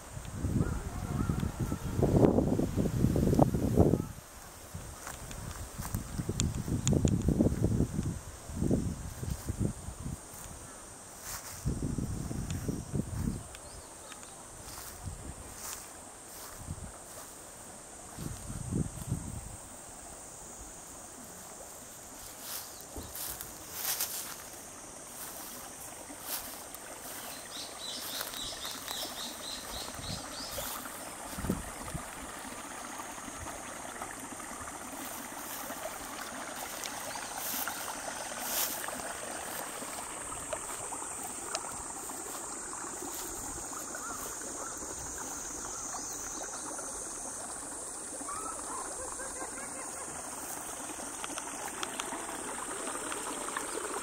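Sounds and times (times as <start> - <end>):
high-pitched insect drone: 0.0 - 54.0
insect chirps: 0.0 - 54.0
water trickling: 20.8 - 54.0.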